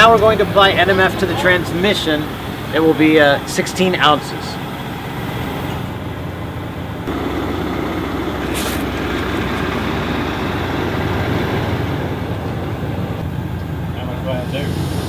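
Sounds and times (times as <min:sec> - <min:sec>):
vehicle engine rumbling: 0:00.0 - 0:15.0
brief hiss: 0:08.5 - 0:08.9.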